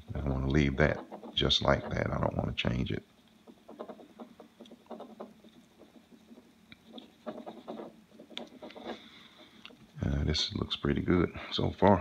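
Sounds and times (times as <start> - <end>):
pad rubbing on metal: 3.4 - 9.6.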